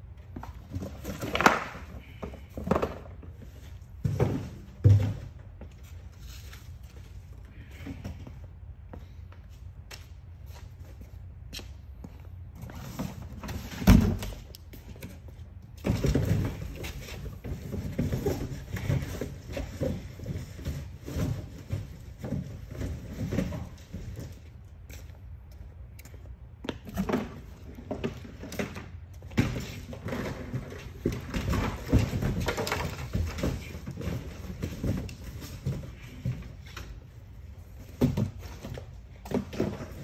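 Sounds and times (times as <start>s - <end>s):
cardboard thumping and rustling: 0.4s - 5.8s, 12.9s - 14.4s, 15.8s - 24.4s, 26.9s - 37.0s.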